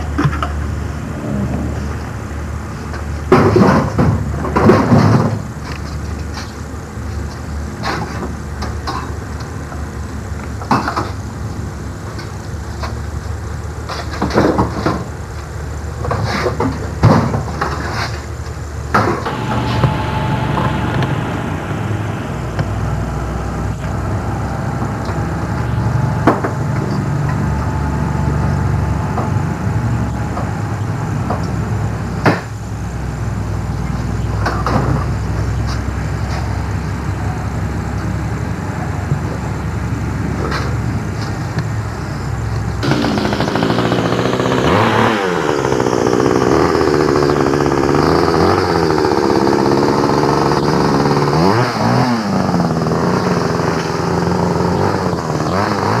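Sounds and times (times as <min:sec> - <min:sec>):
string trimmer engine running: 0:19.0 - 0:29.6, 0:42.5 - 0:56.0.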